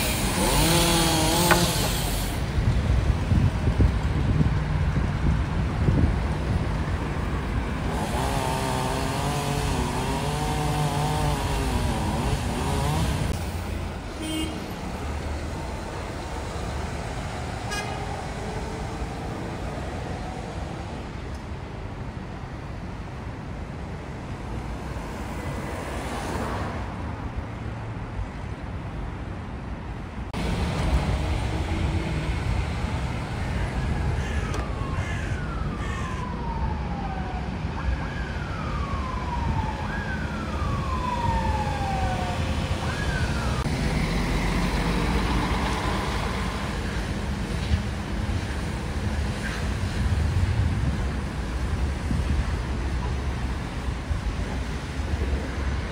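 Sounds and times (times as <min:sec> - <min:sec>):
road traffic passing: 0:00.0 - 0:55.9
distant siren wailing: 0:33.1 - 0:46.9.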